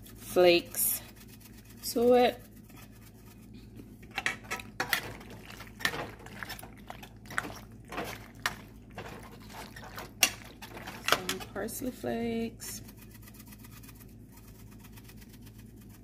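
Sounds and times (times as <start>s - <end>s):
metal utensil scraping a pan: 4.1s - 11.8s.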